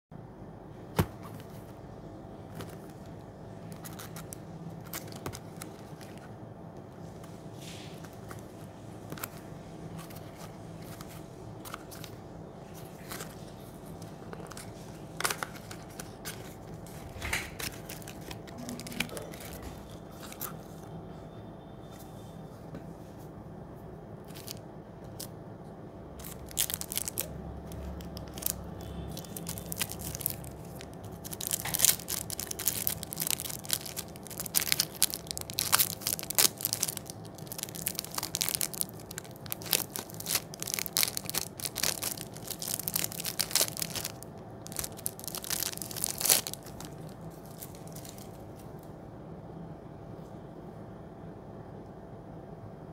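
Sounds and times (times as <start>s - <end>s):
wrapper crinkling and tearing: 2.6s - 6.3s, 14.3s - 20.6s, 24.2s - 25.3s, 26.2s - 48.4s.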